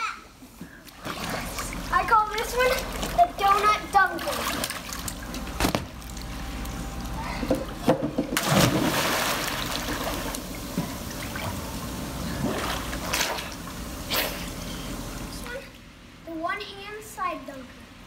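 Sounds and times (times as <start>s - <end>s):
water sloshing: 0.8s - 6.4s, 8.0s - 13.6s
big splash into pool: 8.4s - 10.4s.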